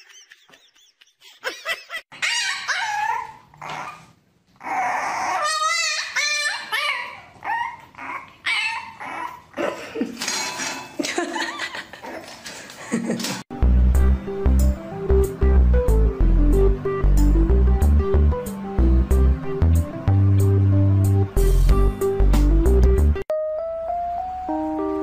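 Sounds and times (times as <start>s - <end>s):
puppy yipping and whining: 2.1s - 9.6s.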